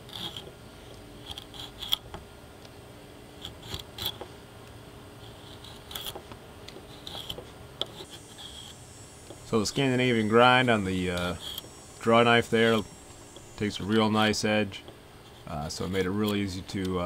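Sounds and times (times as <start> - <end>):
draw knife scraping wood: 0.0 - 0.5, 1.2 - 2.2, 3.4 - 4.3, 5.2 - 8.8, 11.1 - 11.8, 14.8 - 16.5.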